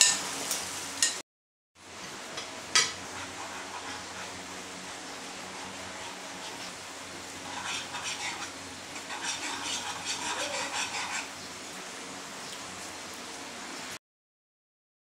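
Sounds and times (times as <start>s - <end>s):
utensil scraping frying pan: 2.2s - 11.4s
sauce hissing in pan: 3.0s - 11.5s.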